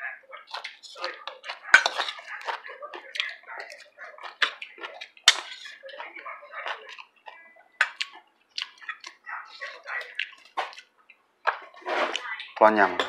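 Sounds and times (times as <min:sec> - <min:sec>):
spoons clinking on ceramic bowls: 0:00.4 - 0:03.0, 0:03.6 - 0:07.0.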